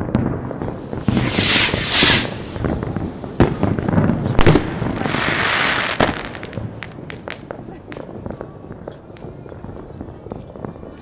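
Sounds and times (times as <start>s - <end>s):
fireworks bangs: 0.0s - 11.0s
fireworks crackling: 0.0s - 11.0s
rushing hiss: 1.0s - 2.8s.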